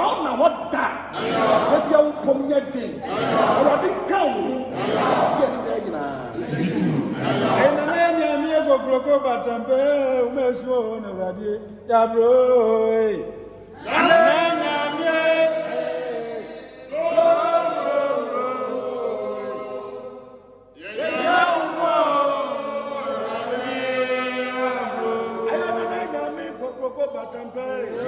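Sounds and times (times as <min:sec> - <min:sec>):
group of voices chanting: 0:01.1 - 0:01.9, 0:03.0 - 0:04.0, 0:04.6 - 0:05.6, 0:07.1 - 0:07.8, 0:13.8 - 0:26.6.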